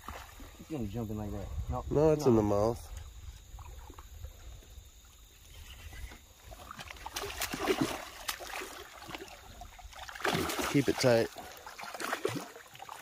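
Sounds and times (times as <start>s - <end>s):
fish splashing in water: 6.5s - 13.0s.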